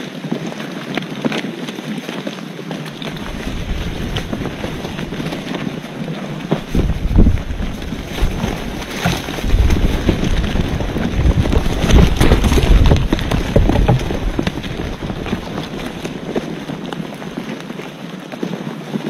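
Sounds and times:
wind buffeting microphone: 2.7s - 18.2s
knocks and rustles: 2.9s - 17.7s.

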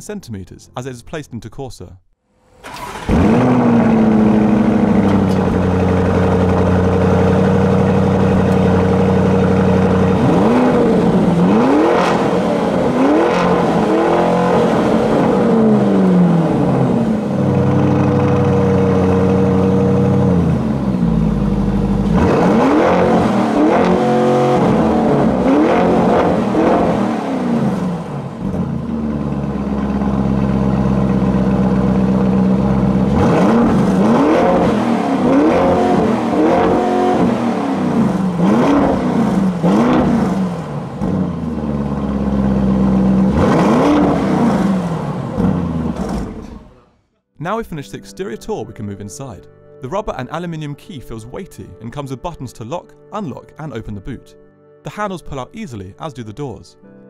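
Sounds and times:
car engine revving: 2.3s - 47.1s
car engine idling: 2.5s - 47.0s.

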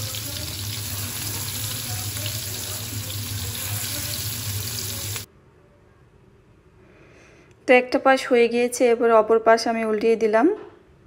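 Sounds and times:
prawns sizzling in hot oil: 0.0s - 5.3s.

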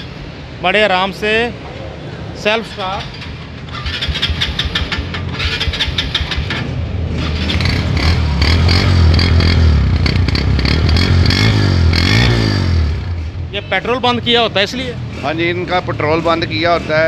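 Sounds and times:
motorcycle engine running: 3.2s - 13.4s.

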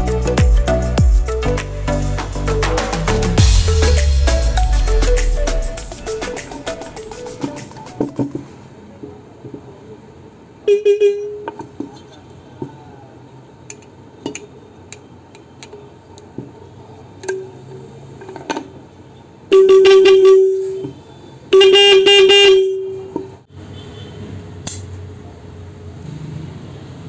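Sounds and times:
disc horn blasts: 21.6s - 23.1s.

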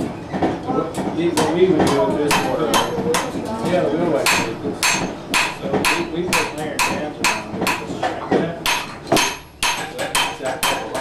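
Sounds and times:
hammer striking metal: 2.3s - 3.2s, 4.2s - 11.0s.

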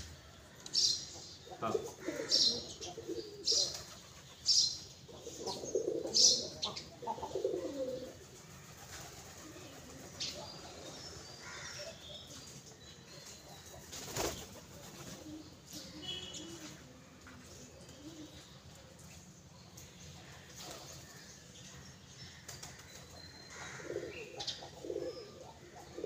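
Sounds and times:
pigeons cooing: 1.5s - 4.2s, 5.1s - 11.7s, 23.5s - 26.0s.

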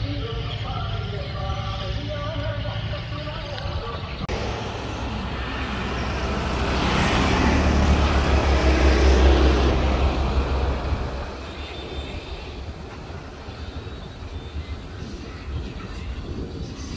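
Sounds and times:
vehicle passing on highway: 4.2s - 16.6s.

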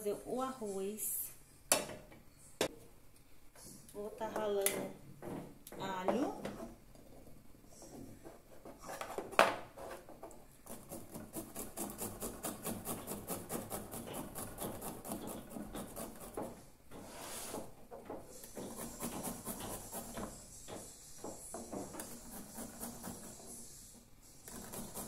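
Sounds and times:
garlic grated on metal grater: 24.5s - 25.0s.

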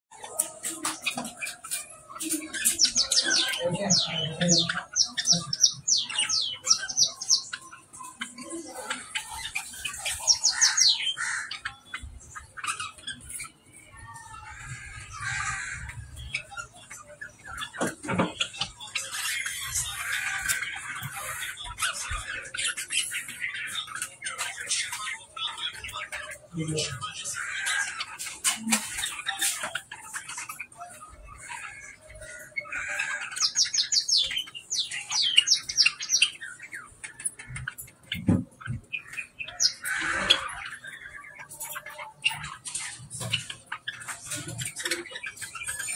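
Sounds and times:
budgerigars chirping: 0.1s - 45.9s
budgerigar warbling: 9.0s - 13.0s, 38.9s - 41.6s.

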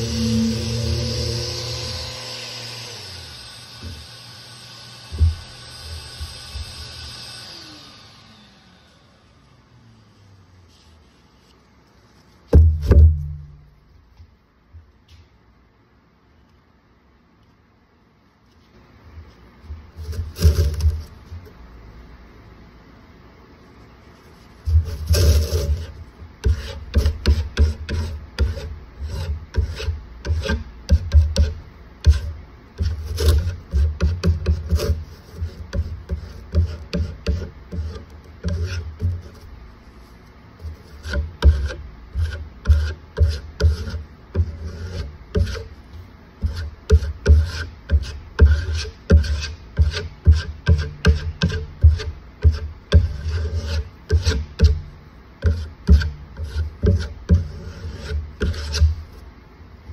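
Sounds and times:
putty knife scraping wood: 20.0s - 21.2s, 24.7s - 39.5s, 40.6s - 45.8s, 46.4s - 59.2s.

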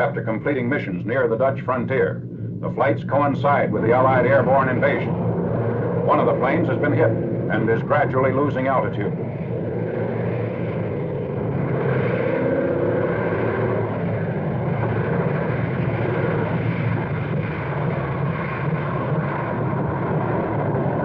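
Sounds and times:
propeller aircraft engines droning: 0.0s - 21.0s.

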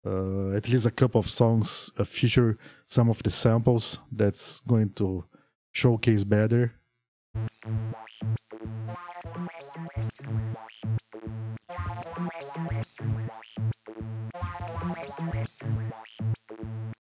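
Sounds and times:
rhythmic synth loop: 7.4s - 17.0s.

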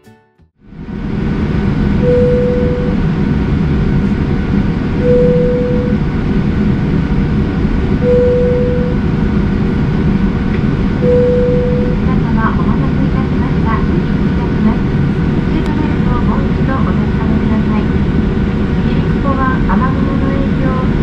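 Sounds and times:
jet engines rumbling: 0.6s - 21.0s
short tone: 2.0s - 3.0s, 5.0s - 6.0s, 8.0s - 9.0s, 11.0s - 12.0s.

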